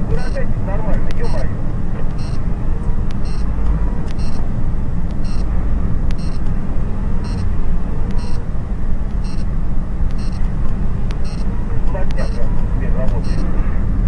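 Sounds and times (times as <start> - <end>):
car road and engine noise: 0.0 - 14.0
faint high-pitched beep: 0.2 - 0.4, 1.2 - 1.5, 2.2 - 2.4, 3.2 - 3.5, 4.2 - 4.4, 5.2 - 5.5, 6.2 - 6.4, 7.2 - 7.5, 8.2 - 8.4, 9.2 - 9.5, 10.2 - 10.4, 11.2 - 11.4, 12.2 - 12.5, 13.2 - 13.5.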